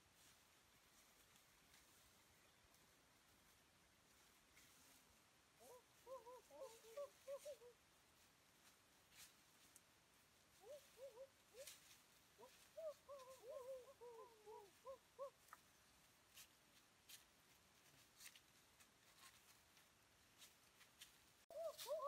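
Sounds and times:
bird calling: 5.6s - 7.8s, 10.6s - 15.6s, 21.5s - 22.0s
footsteps on dry leaves: 16.3s - 22.0s.

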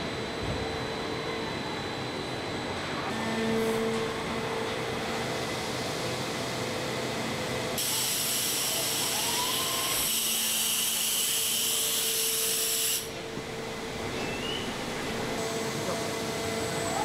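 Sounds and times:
machine hum: 11.5s - 17.0s.

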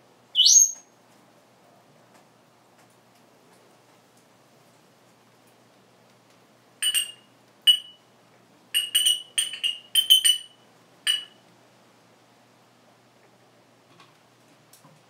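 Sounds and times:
parrot high-pitched whistles: 0.3s - 0.8s, 6.8s - 8.0s, 8.8s - 11.3s.

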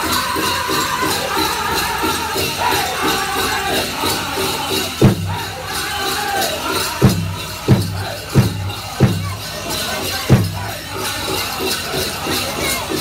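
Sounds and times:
drum group singing: 0.0s - 13.0s
leg bells jingling: 0.0s - 13.0s
steady drumbeat: 0.0s - 13.0s
loud accented drum strikes: 4.8s - 5.9s, 6.8s - 9.5s, 10.2s - 10.8s.

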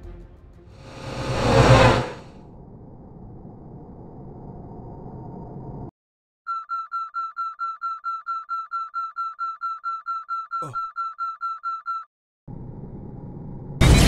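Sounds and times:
falling swoosh: 0.8s - 2.3s
rapid high warning beeps: 6.5s - 12.1s.

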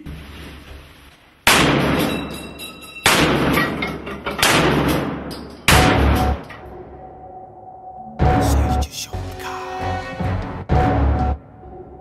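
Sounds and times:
loud ringing bangs: 1.5s - 7.0s.

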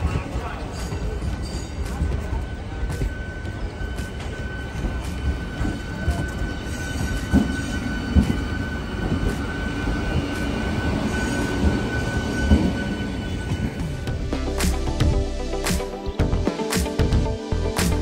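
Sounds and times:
train wheels rumbling on rails: 0.0s - 14.2s.

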